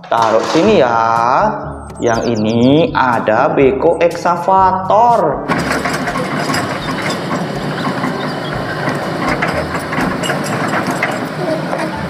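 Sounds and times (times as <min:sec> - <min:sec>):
excavator diesel engine running: 0:05.5 - 0:12.0
metallic clicking and rattling: 0:05.5 - 0:12.0.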